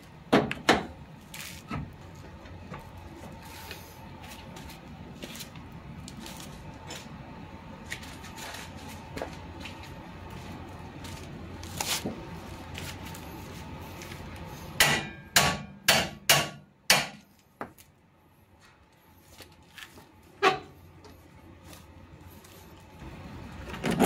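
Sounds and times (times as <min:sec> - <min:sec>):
hammer striking metal: 0:14.8 - 0:17.3.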